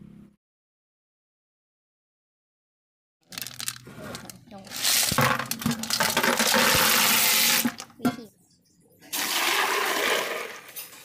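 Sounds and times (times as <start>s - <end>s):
water pouring into plastic bucket: 5.8s - 7.8s, 9.1s - 11.0s.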